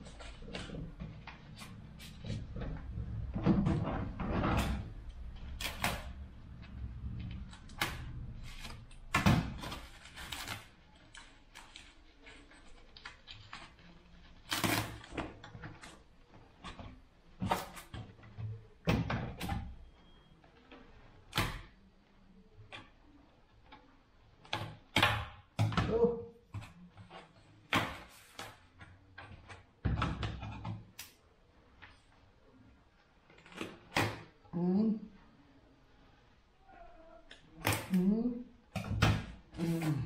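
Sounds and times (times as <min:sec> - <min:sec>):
plastic and foam wrap rustling: 0:04.0 - 0:18.8.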